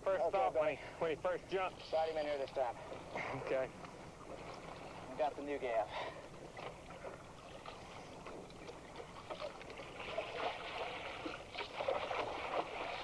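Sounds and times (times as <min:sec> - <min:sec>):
fish thrashing and splashing water: 0:06.5 - 0:13.0.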